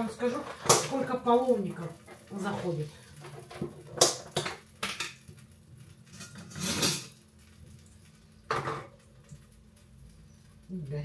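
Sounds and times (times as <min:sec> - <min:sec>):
ladle scraping pot: 0:06.1 - 0:07.2.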